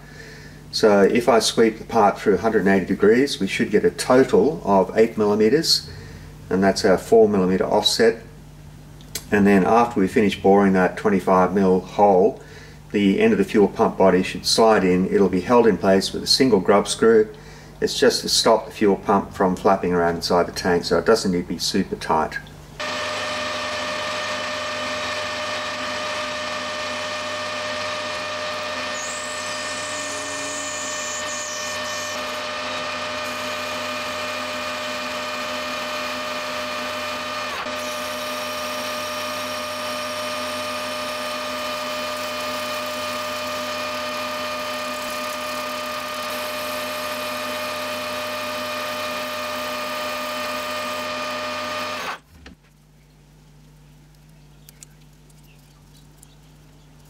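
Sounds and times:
boring bar cutting plastic: 22.8 - 52.2
metal lathe whining: 22.8 - 52.2.

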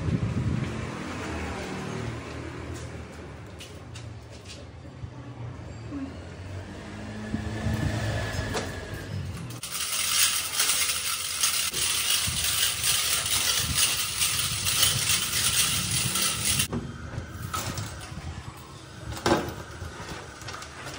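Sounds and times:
steel chain rattling: 8.9 - 16.7.

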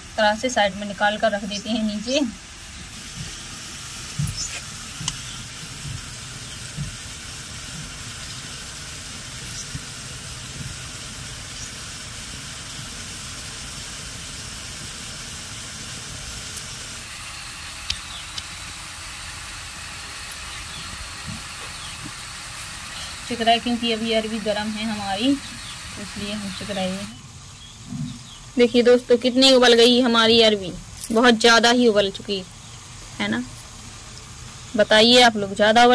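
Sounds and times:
background hiss: 0.0 - 35.9.

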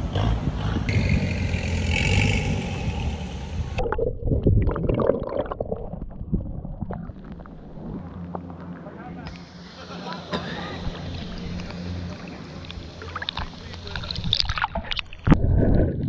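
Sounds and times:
water rushing with low rumble: 1.4 - 16.0
muffled underwater sound: 3.6 - 16.0
gurgling bubbles: 3.8 - 8.8, 10.9 - 16.0.

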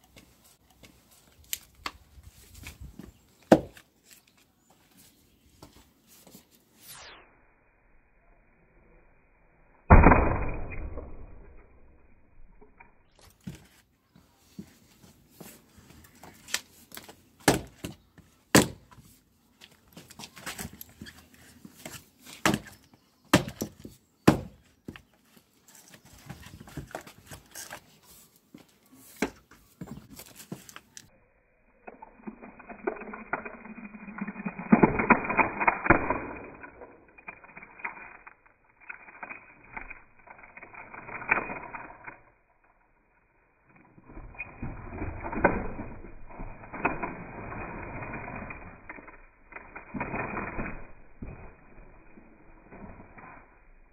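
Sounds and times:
maul striking wood: 3.5 - 3.8, 9.9 - 11.5, 17.4 - 19.0, 22.4 - 24.6
wood cracking and splitting: 16.3 - 19.0, 19.6 - 25.1, 31.8 - 42.4, 43.6 - 53.2.

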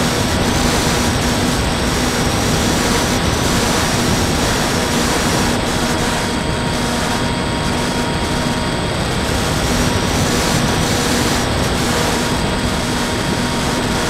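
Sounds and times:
electric motor propeller drone: 0.0 - 14.0
wind rush: 0.0 - 14.0.

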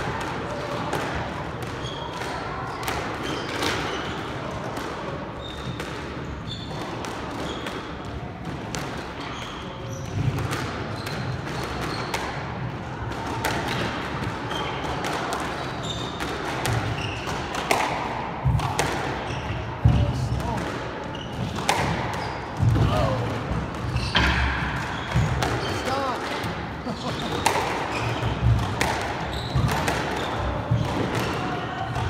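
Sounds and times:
squash ball struck by rackets: 10.1 - 32.0
shoes squeaking on wooden floor: 23.8 - 24.3, 26.9 - 28.5, 29.2 - 30.4.

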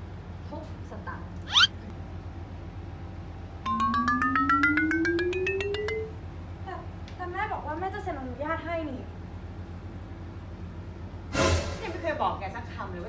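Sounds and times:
low tone gliding upward: 3.7 - 6.1
ascending xylophone run: 3.7 - 6.2.

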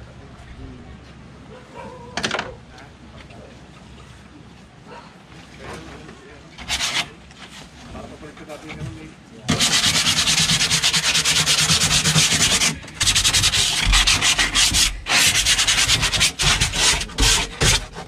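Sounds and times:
sandpaper rubbing on wood: 6.6 - 7.2, 9.5 - 18.0.

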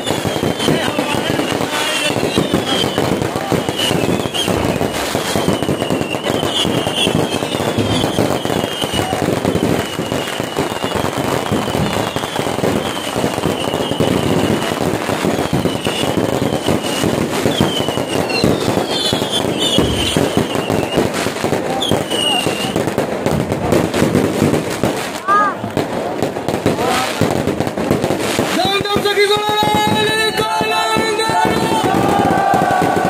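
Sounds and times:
high falling firework whistles: 0.0 - 22.9, 30.2 - 33.0
fireworks crackling and popping: 0.0 - 33.0.

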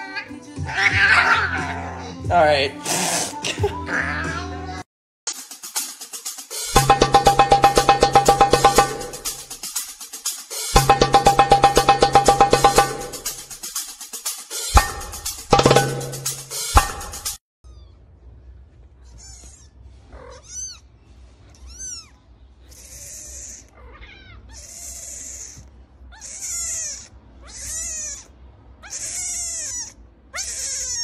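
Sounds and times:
drum music: 5.3 - 17.4
kitten meowing: 19.0 - 20.9, 21.5 - 31.0.

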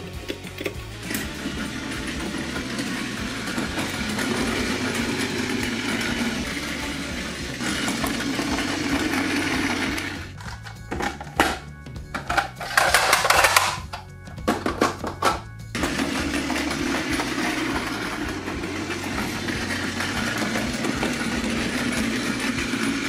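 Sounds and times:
toy train motor whirring: 0.8 - 10.8, 15.8 - 23.0
plastic wheels rattling on wood: 1.1 - 11.6, 12.2 - 23.0.

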